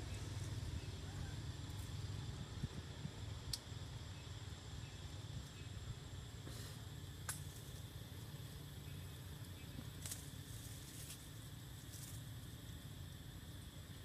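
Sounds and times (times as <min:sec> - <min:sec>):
insect drone: 0:00.0 - 0:14.0
steady low rumble: 0:00.0 - 0:14.0
rustling in tree branches: 0:06.4 - 0:12.8.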